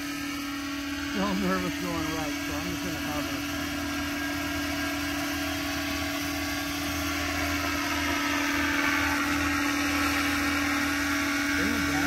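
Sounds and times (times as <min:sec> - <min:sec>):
model helicopter rotor whine: 0:00.0 - 0:12.0.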